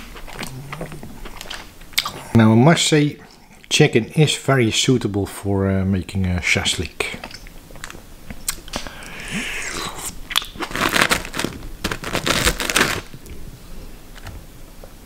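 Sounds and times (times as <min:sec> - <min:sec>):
close chewing mouth sounds: 0:00.0 - 0:02.4, 0:07.2 - 0:10.7.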